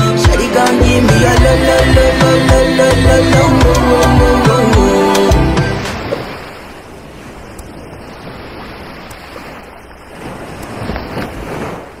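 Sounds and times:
surf washing onto beach: 4.6 - 12.0.

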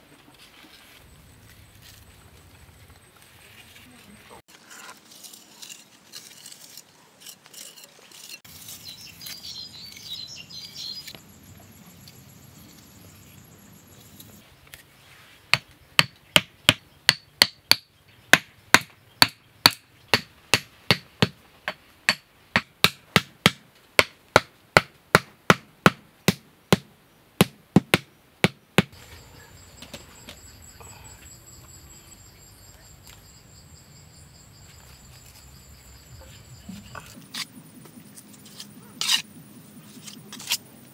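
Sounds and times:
hammer knocking wooden stakes: 15.5 - 29.0.

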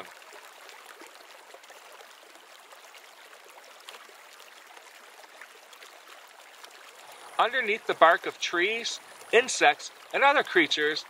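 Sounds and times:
faint hiss: 6.6 - 11.0.

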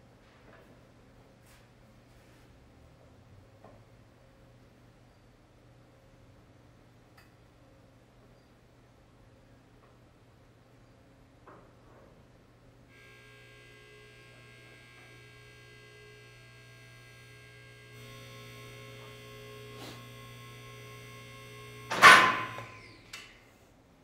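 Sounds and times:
low electrical hum: 0.0 - 24.0
hydraulic lift whining: 12.9 - 23.4
loud metallic clang: 21.9 - 22.7.

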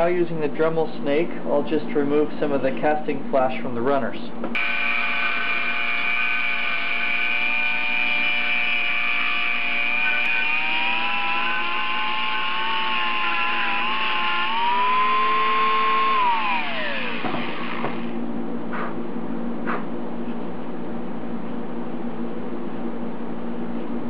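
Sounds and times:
rotary tool grinding whine: 4.6 - 18.2.

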